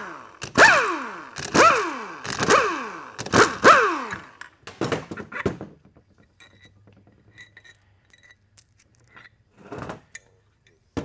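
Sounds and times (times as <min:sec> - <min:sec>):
power driver whirring: 0:00.0 - 0:04.5.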